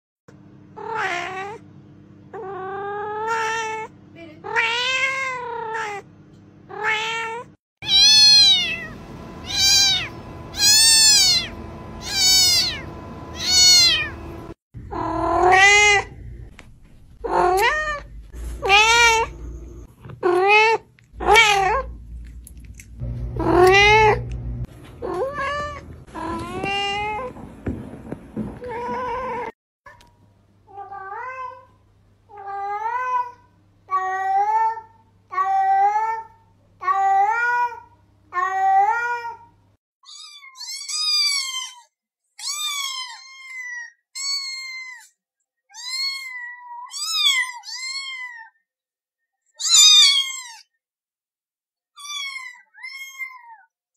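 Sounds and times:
cat meowing: 6.7s - 14.3s, 14.9s - 16.2s, 17.2s - 19.6s, 20.2s - 22.0s, 23.4s - 24.3s, 45.7s - 48.5s, 49.6s - 50.7s, 52.0s - 53.7s.

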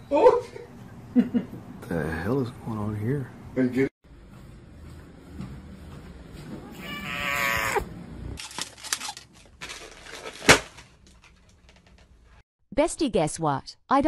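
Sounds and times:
cat meowing: 6.7s - 7.9s
rustling and handling noise: 8.4s - 12.4s.

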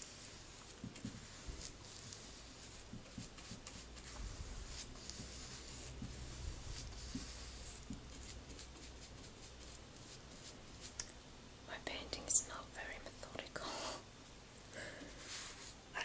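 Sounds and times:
paintbrush swishing on wood: 0.0s - 11.0s, 15.1s - 15.8s.

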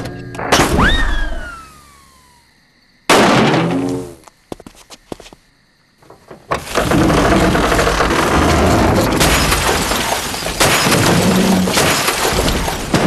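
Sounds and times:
music: 0.0s - 0.5s
car crashing and glass shattering: 6.5s - 13.0s.

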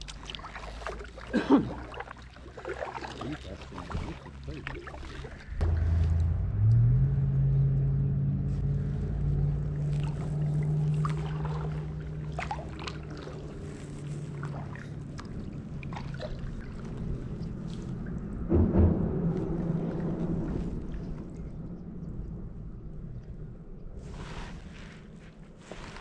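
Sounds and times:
paddle water splashing: 0.0s - 7.0s, 8.4s - 22.4s, 24.0s - 26.0s
low steady hum: 3.7s - 25.6s.

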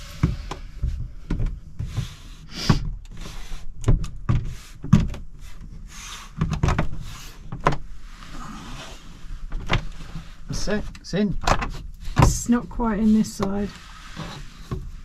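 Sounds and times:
plastic scraping rubs: 0.0s - 15.0s.

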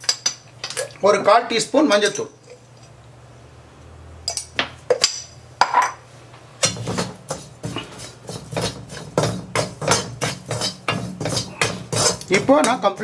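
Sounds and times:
ladle scraping a metal pan: 6.6s - 13.0s.

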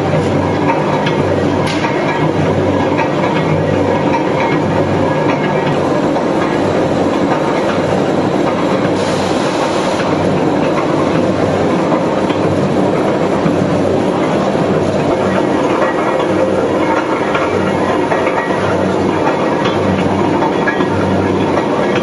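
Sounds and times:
industrial machinery rumbling: 0.0s - 22.0s.

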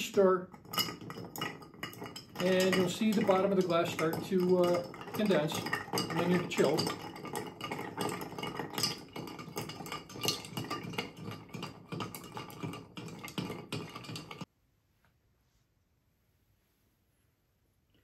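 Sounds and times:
ice clinking in glass: 0.5s - 14.5s.

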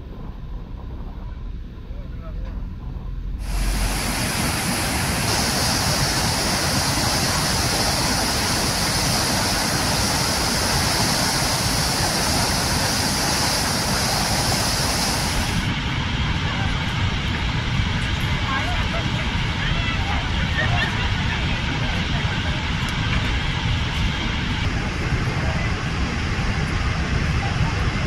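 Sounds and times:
rapids rushing: 3.4s - 16.7s.

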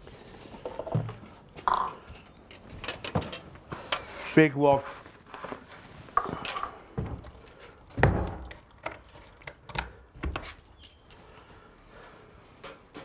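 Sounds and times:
keys jangling: 6.4s - 11.9s.

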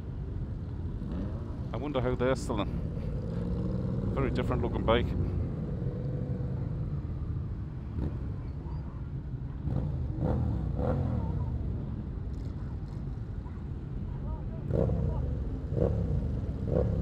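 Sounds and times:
motorcycle engines rumbling: 0.0s - 17.0s.

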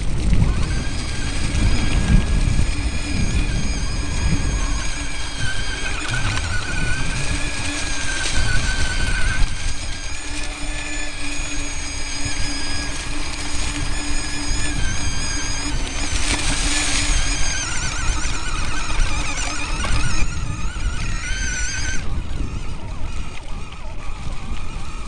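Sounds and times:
electric motor whining: 0.0s - 25.0s
wheels rumbling on rough ground: 0.0s - 25.0s.

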